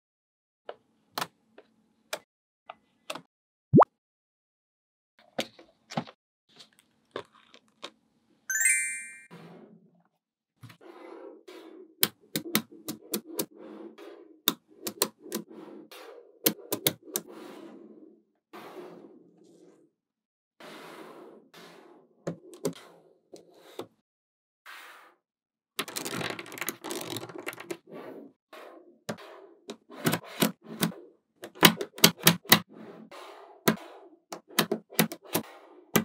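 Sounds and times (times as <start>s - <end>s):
bright ringing tone: 8.5s - 9.3s.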